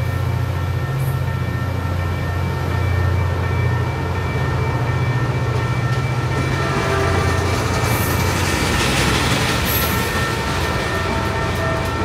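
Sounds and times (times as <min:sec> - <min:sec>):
crossing bells ringing: 0:00.0 - 0:12.0
train wheels rumbling on rails: 0:00.0 - 0:12.0.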